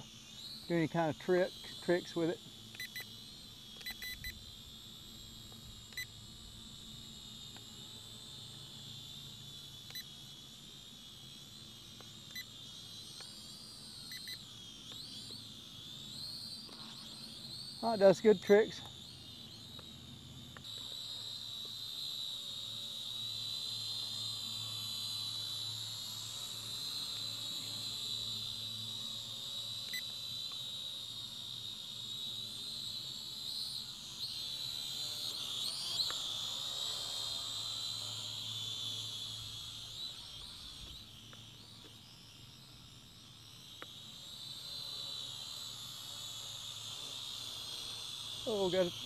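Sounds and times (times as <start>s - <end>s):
drone propellers whining: 33.9s - 49.0s.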